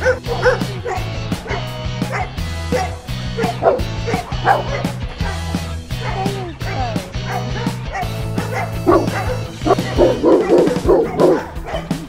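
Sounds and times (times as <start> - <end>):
background music with beat: 0.0 - 12.0
dog yipping and whining: 7.3 - 12.0.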